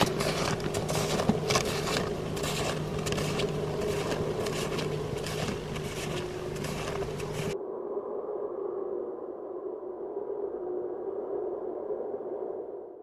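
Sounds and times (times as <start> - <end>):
footsteps crunching through snow: 0.0 - 7.6
steady low hum: 0.0 - 10.4.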